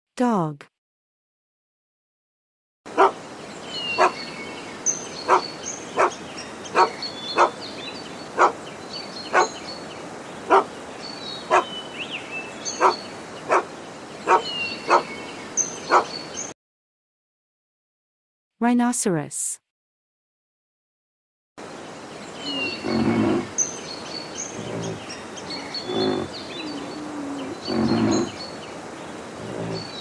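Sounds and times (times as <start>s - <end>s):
dog barking: 3.0s - 3.2s, 4.0s - 4.2s, 6.0s - 6.2s, 6.8s - 7.6s, 8.4s - 8.6s, 9.3s - 9.5s, 10.5s - 10.7s, 11.5s - 11.7s, 12.8s - 13.7s, 14.3s - 15.1s, 15.9s - 16.1s.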